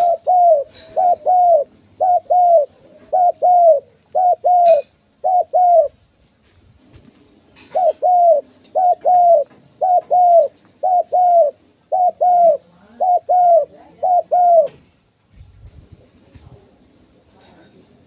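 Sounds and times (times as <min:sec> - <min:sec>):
dove cooing: 0:00.0 - 0:06.0, 0:07.6 - 0:14.8.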